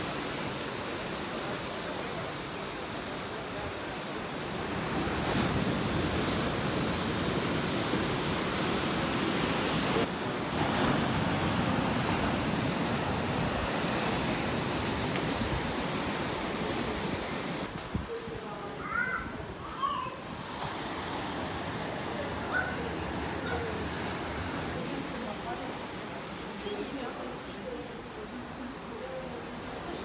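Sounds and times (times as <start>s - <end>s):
surf breaking on rocky shore: 0.0s - 17.8s.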